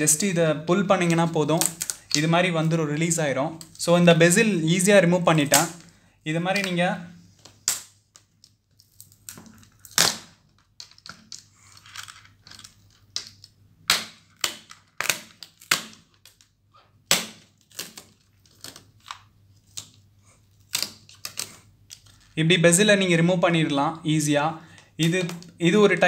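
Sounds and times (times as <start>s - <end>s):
plastic clips clicking and cracking: 1.0s - 2.8s, 25.0s - 25.6s.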